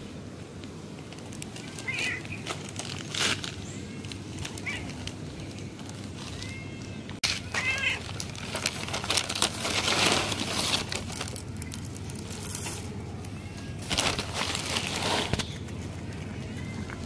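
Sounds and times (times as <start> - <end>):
dry cat food rustling: 0.6 - 17.0
cat meowing: 6.4 - 8.0.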